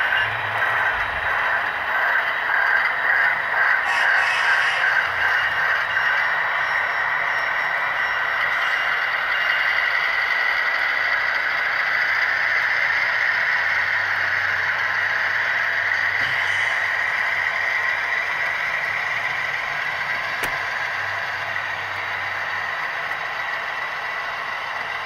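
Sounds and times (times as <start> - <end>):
model train wheels rattling: 0.0 - 25.0.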